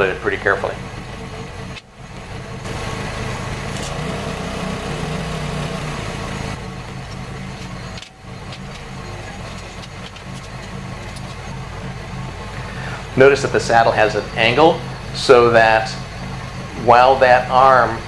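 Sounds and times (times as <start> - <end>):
welder electrical hum with hiss: 2.7 - 6.6.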